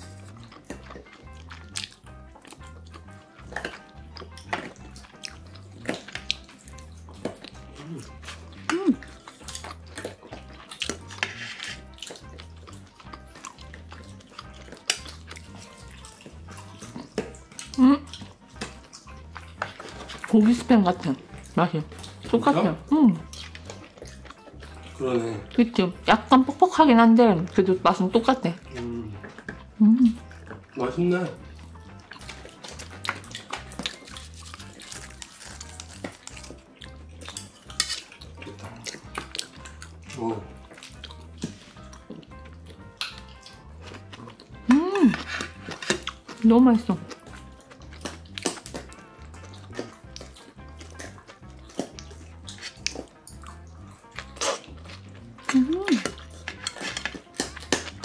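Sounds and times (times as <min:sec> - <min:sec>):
scissors snipping wet food: 0:00.0 - 0:20.6, 0:31.8 - 0:58.0
background music with bass: 0:00.0 - 0:58.0
metal clinking and scraping on pot: 0:37.4 - 0:38.2, 0:56.0 - 0:58.0
chopsticks clicking on metal bowls: 0:55.4 - 0:58.0.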